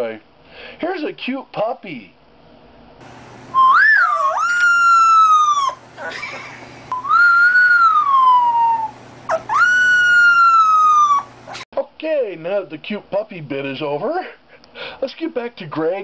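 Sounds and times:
puppy howling: 0:03.6 - 0:05.8, 0:06.9 - 0:11.6.

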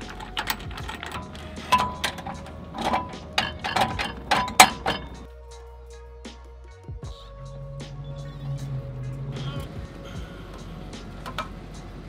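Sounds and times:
metal clanks and clicks: 0:00.0 - 0:05.3, 0:10.5 - 0:11.6
background music: 0:00.0 - 0:12.0.

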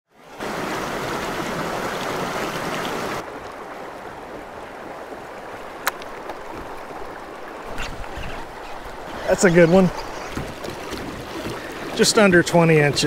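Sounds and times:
stream flowing over rocks: 0:00.1 - 0:13.0.

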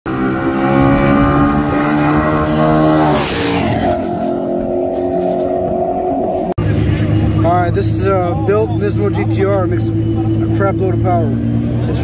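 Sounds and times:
wind noise of passing cars: 0:00.1 - 0:07.2
racing car engines: 0:00.1 - 0:12.0.

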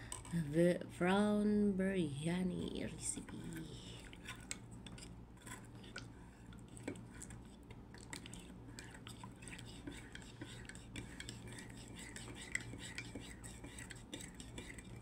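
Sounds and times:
low steady hum: 0:00.0 - 0:15.0
spoon scraping metal pan: 0:08.8 - 0:15.0.

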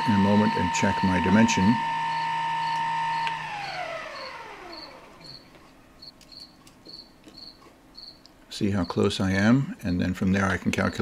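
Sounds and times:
lathe motor whining: 0:00.0 - 0:05.8.

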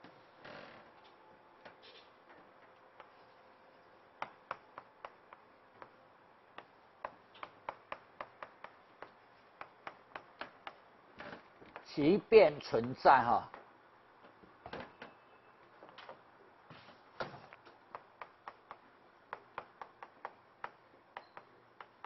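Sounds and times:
chalk tapping on blackboard: 0:04.2 - 0:06.0, 0:06.6 - 0:10.8, 0:17.9 - 0:22.0.

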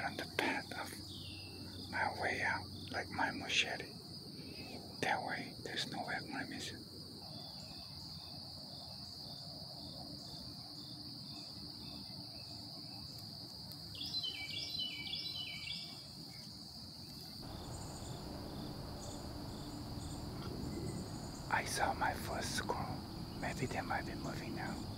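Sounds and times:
insect chorus chirring: 0:00.0 - 0:24.9
chirping calls: 0:17.4 - 0:24.9.

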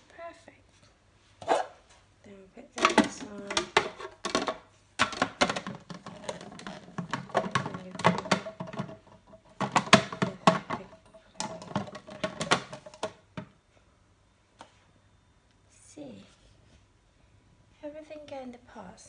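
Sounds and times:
plastic parts clicking and knocking: 0:02.8 - 0:13.6.

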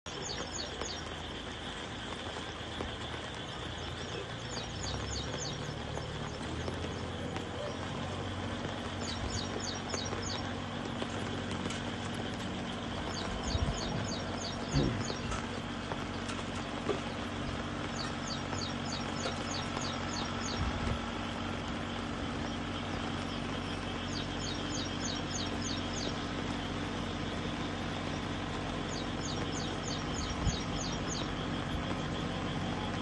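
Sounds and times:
bird chirping: 0:00.1 - 0:33.0
noisy background: 0:00.1 - 0:33.0
tractor engine droning: 0:00.1 - 0:33.0.

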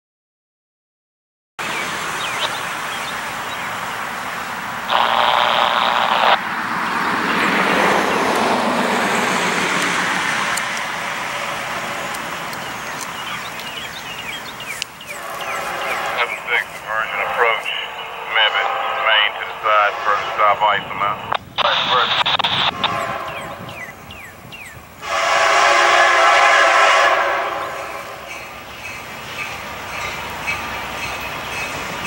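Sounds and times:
road traffic passing: 0:01.6 - 0:32.0
car horn blast: 0:25.0 - 0:27.8.

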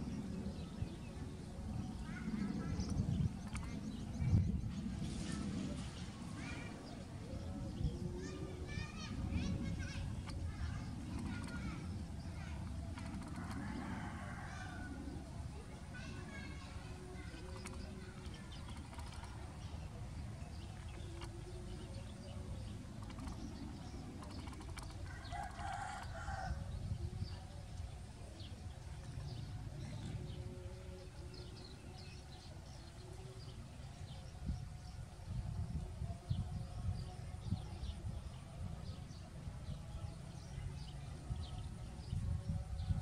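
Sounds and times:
steady low rumble: 0:00.0 - 0:43.0
rooster crowing: 0:25.1 - 0:26.6.

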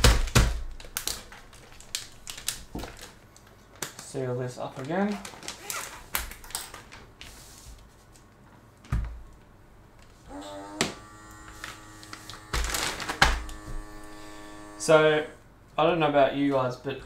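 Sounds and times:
plastic bag rustling: 0:00.0 - 0:08.7, 0:11.4 - 0:14.4
electric vacuum pump hum: 0:10.2 - 0:15.4.

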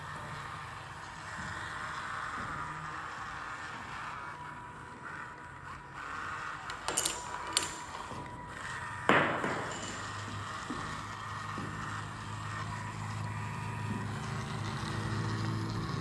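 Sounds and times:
robot drive motors whirring: 0:00.0 - 0:16.0
domino clattering onto wooden table: 0:06.6 - 0:08.3, 0:09.1 - 0:11.0.

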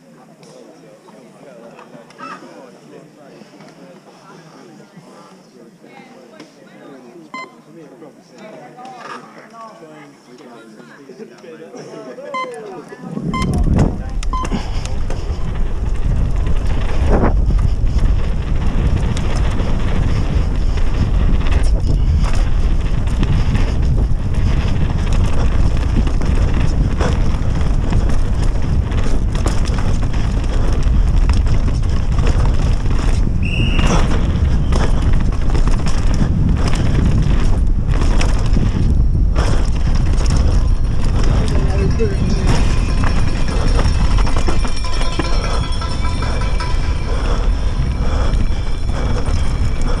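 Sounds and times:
wind buffeting the microphone: 0:13.0 - 0:50.0
bike rattling over bumps: 0:13.3 - 0:50.0
tyres rolling over dirt: 0:14.8 - 0:50.0.

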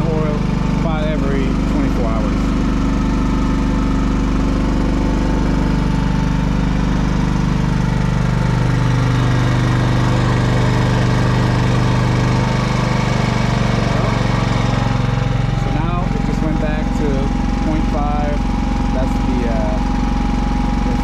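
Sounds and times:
generator engine running: 0:00.0 - 0:21.0.

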